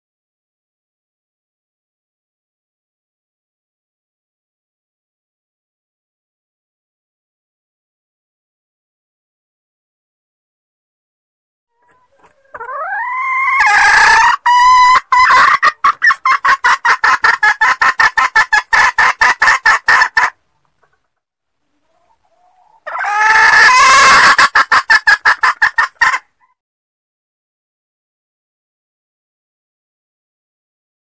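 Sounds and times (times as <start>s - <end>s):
hen calling with fast clucks: 11.8s - 21.0s, 21.7s - 26.6s.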